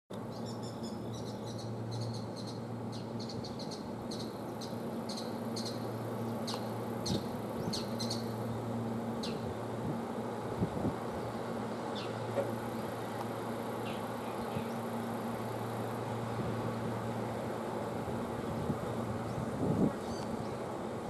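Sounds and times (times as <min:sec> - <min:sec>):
electric train hum: 0:00.1 - 0:21.0
small birds chirping: 0:00.2 - 0:08.6, 0:11.2 - 0:15.2, 0:19.3 - 0:20.6.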